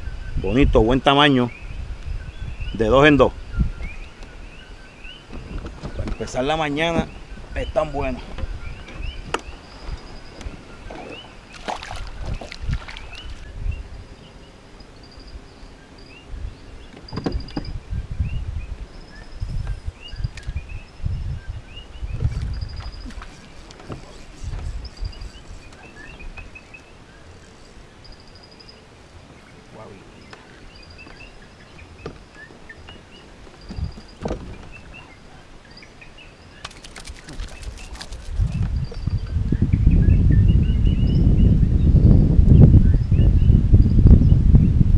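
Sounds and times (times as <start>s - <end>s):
birds chirping: 0.0s - 44.4s
low thumps on hull: 33.6s - 35.0s.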